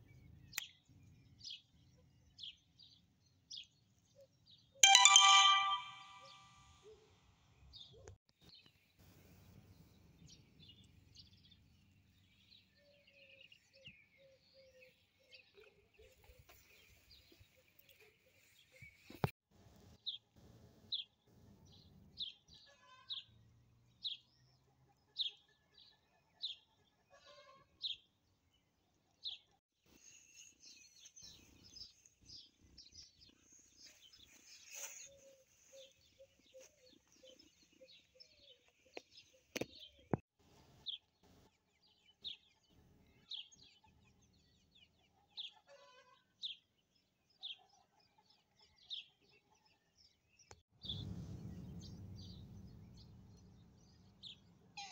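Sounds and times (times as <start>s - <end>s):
small birds chirping: 20.9s - 40.2s.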